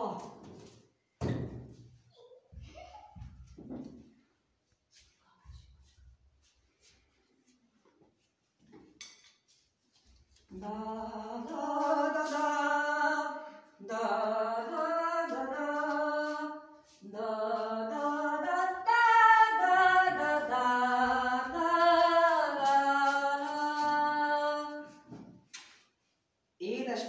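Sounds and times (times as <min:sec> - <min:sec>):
person singing unaccompanied: 0:10.5 - 0:25.0.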